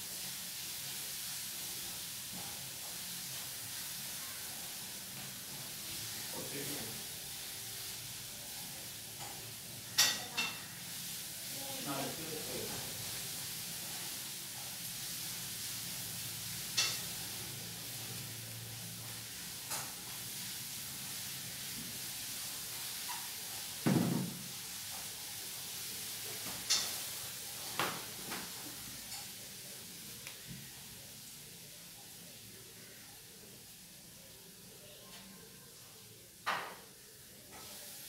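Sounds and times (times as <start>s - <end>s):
steady background hiss: 0.0s - 38.0s.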